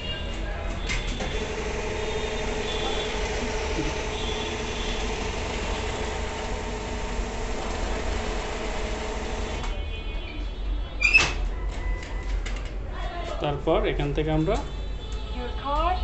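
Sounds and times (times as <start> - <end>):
cash dispenser mechanical hum: 0.0 - 9.8.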